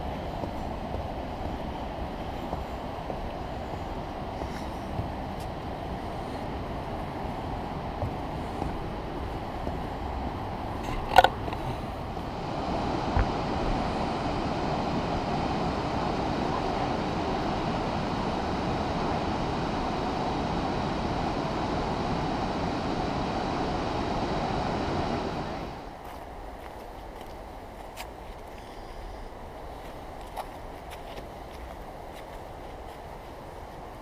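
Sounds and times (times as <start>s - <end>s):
waterfall rushing: 9.9s - 25.9s.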